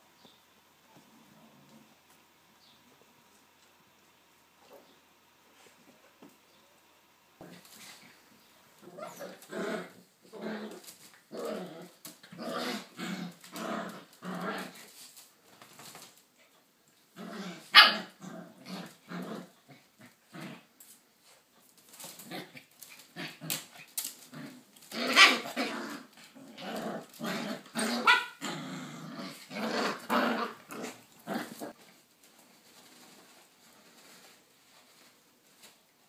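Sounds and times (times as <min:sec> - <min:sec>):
dogs growling: 0:08.8 - 0:14.8, 0:17.1 - 0:20.7, 0:22.2 - 0:31.8.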